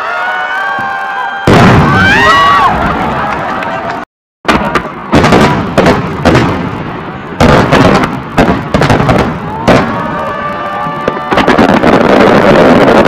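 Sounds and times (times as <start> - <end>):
firework crackle: 4.5 - 13.0.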